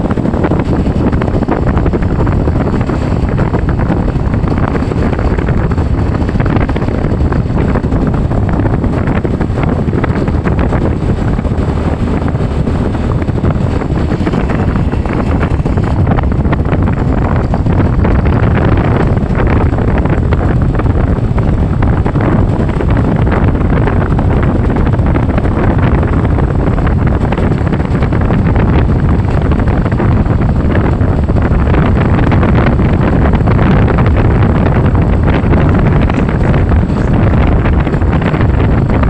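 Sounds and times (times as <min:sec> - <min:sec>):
vehicle running: 0:00.0 - 0:39.0
wind buffeting microphone: 0:00.0 - 0:39.0.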